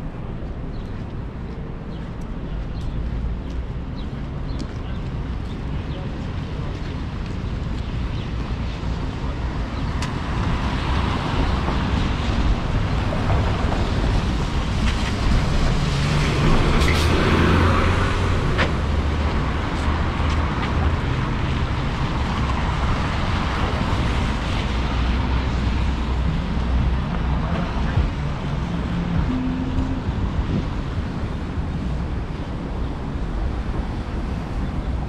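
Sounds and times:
city street traffic rumble: 0.0 - 35.0
vehicle passing: 14.4 - 31.8.

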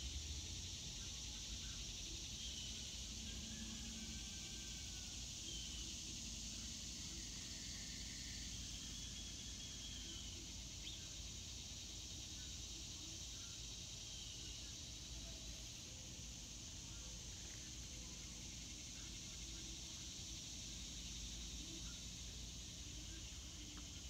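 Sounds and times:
high-pitched insect chorus: 0.0 - 24.0
faint bird chirps: 0.8 - 15.6.

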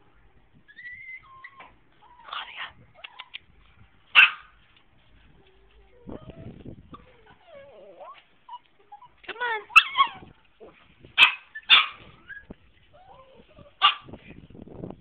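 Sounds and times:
dogs whining softly: 0.6 - 3.5, 5.2 - 10.8, 11.6 - 14.2
small dogs yapping and barking: 0.6 - 14.4.

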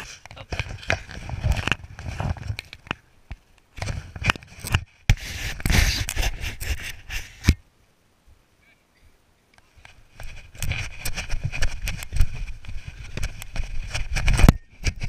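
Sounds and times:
sharp clicks and scrapes: 0.0 - 3.0, 3.6 - 7.6, 9.6 - 15.0
fingers rubbing camera housing: 4.2 - 7.6.

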